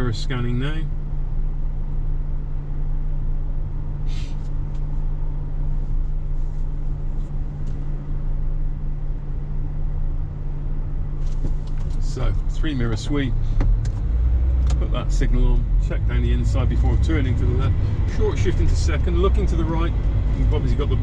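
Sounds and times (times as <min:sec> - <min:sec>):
car engine idling: 0:00.0 - 0:21.0
brief hiss: 0:04.0 - 0:04.6.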